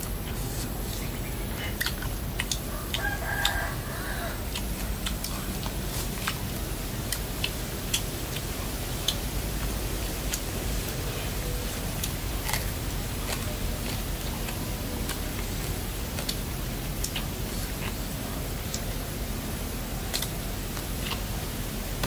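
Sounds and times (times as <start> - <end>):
eating clicks and smacks: 1.6 - 3.7, 4.4 - 19.0, 19.8 - 22.0
rooster crowing: 2.7 - 4.6.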